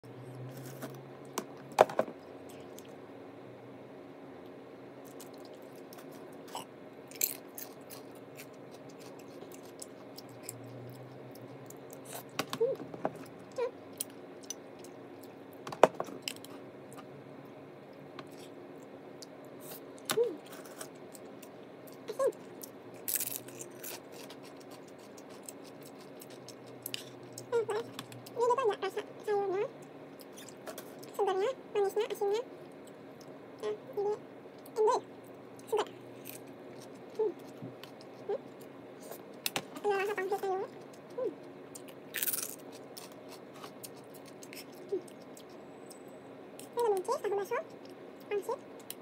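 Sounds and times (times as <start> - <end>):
lettuce chewing crunches: 5.0 - 12.5, 18.2 - 28.4, 40.7 - 46.0.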